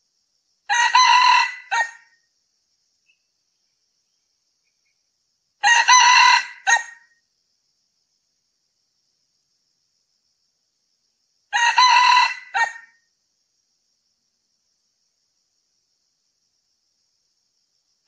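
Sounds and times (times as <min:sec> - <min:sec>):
rooster crowing: 0:00.7 - 0:02.1, 0:05.6 - 0:07.0, 0:11.5 - 0:13.0.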